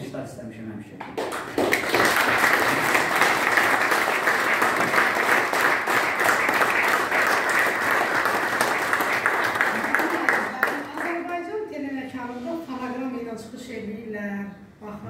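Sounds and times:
people applauding: 1.2s - 11.4s.

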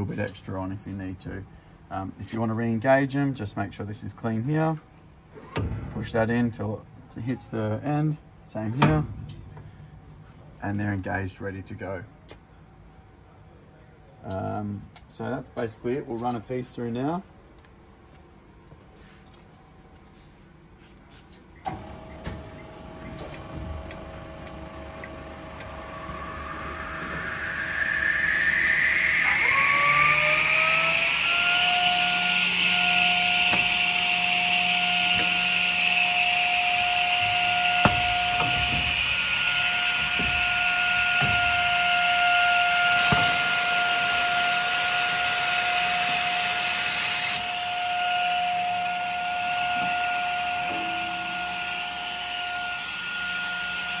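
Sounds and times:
motor whine: 21.6s - 54.0s.

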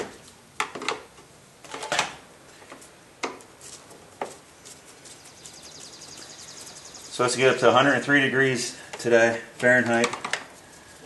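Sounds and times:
clicks and knocks of parts handled: 8.9s - 10.6s.

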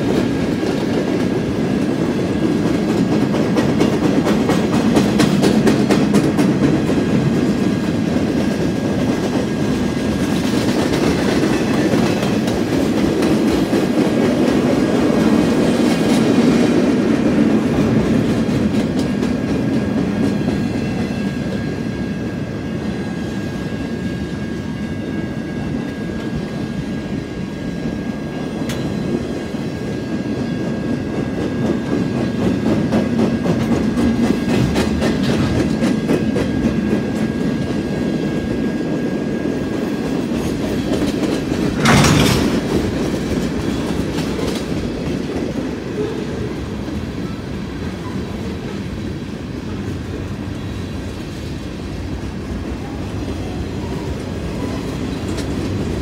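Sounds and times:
steel wheels rumbling on rails: 0.0s - 56.0s
clicking over rail joints: 40.7s - 45.2s.

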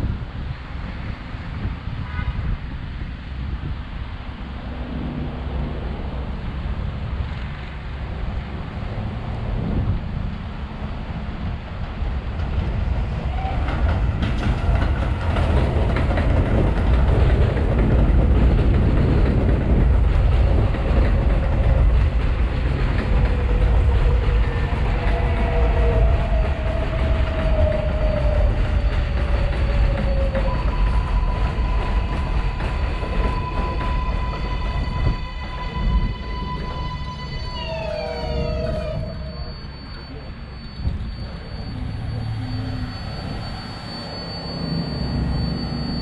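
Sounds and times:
subway train rumbling on rails: 0.0s - 46.0s
wheel clickety-clack: 13.5s - 34.2s.

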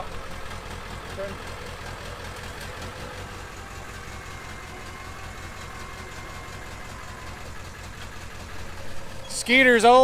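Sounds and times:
truck engine idling: 0.0s - 10.0s.

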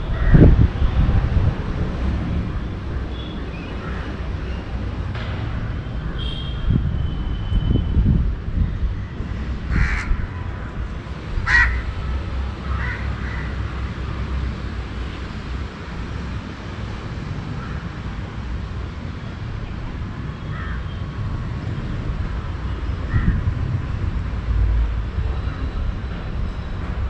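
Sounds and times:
city traffic rumble: 0.0s - 27.0s
wind: 0.0s - 27.0s
crows cawing: 9.7s - 10.2s, 11.4s - 11.9s, 12.6s - 13.6s, 20.5s - 20.9s.

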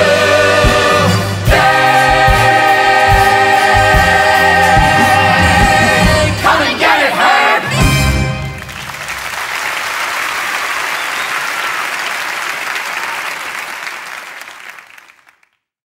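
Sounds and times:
audience applauding: 8.1s - 15.6s.

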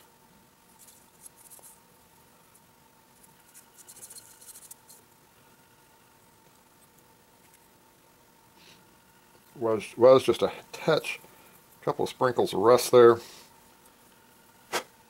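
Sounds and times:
faint steady hum: 0.0s - 15.0s
scratchy rubbing on metal: 3.4s - 5.0s.

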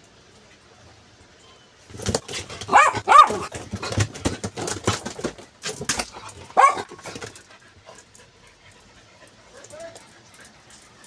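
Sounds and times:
claws scrabbling on tile floor: 1.9s - 8.1s
dogs whining yips: 2.6s - 3.5s.

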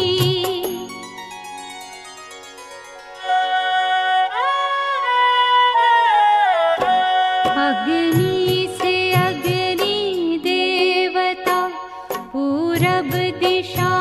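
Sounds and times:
melody with sliding notes: 0.0s - 5.6s.

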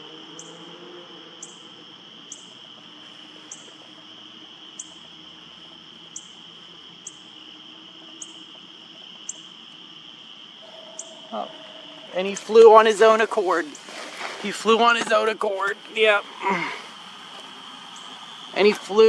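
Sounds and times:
insect chorus: 0.0s - 19.0s
sharp high chirp: 10.6s - 13.8s.

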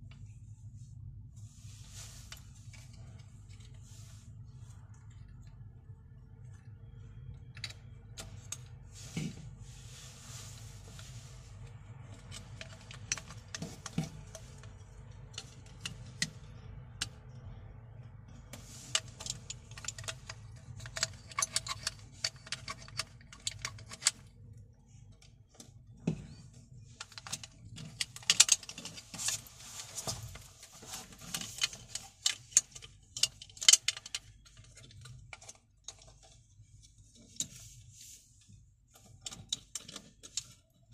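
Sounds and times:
steady low hum: 0.0s - 40.9s
plastic parts clicking and rattling: 12.0s - 17.4s, 18.4s - 37.6s, 38.9s - 40.9s.

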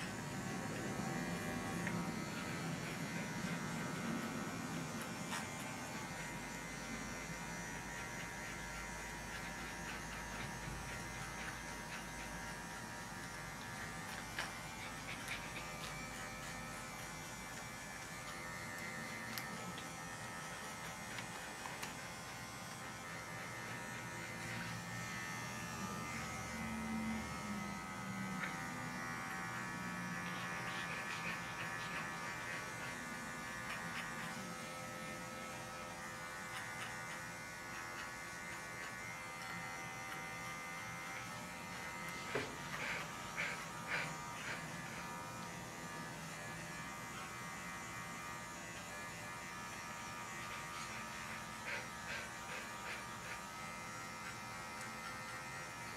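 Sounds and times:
electric clipper buzzing: 0.0s - 55.9s.

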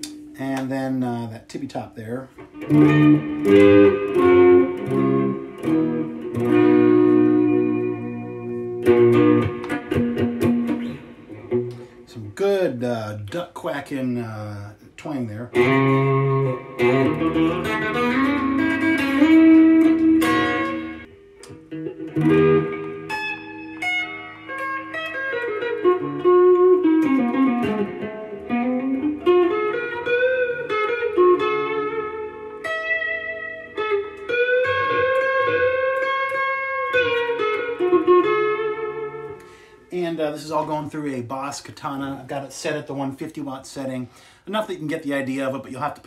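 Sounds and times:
twangy electric guitar: 2.4s - 12.1s, 15.4s - 39.8s.

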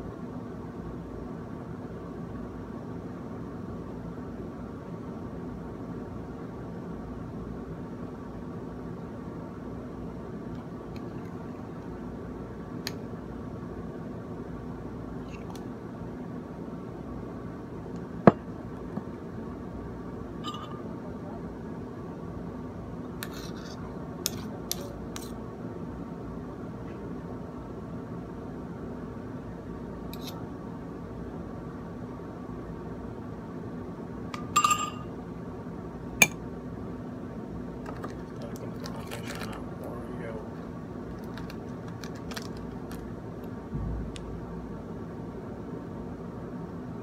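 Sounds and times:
steady low hum: 0.0s - 47.0s
metal spoon clinking on ceramic and glass: 20.4s - 20.8s, 34.4s - 35.1s.

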